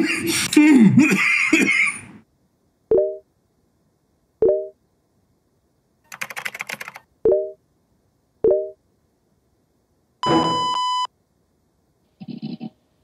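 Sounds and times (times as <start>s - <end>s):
computer keyboard typing: 6.1s - 7.1s.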